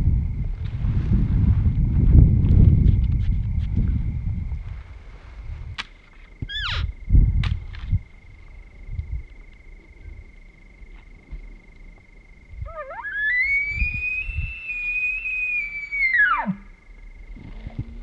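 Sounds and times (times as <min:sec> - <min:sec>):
elk bugling whistle: 0:12.6 - 0:16.9.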